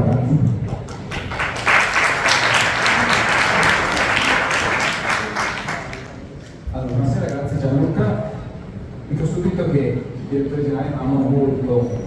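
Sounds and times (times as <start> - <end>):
audience applauding: 0.7 - 6.3.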